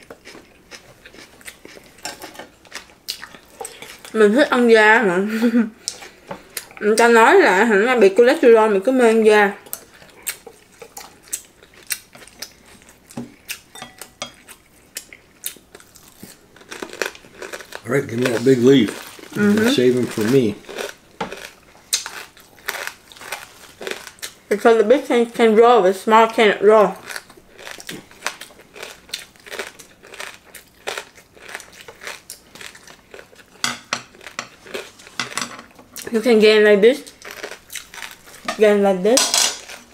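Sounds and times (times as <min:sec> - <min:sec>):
chopsticks and plates clinking: 0:02.0 - 0:02.5, 0:13.7 - 0:14.5, 0:33.6 - 0:34.6, 0:35.2 - 0:35.7, 0:39.2 - 0:39.7
crunching of crispy pork skin: 0:15.0 - 0:24.4, 0:27.0 - 0:35.1, 0:37.1 - 0:38.5.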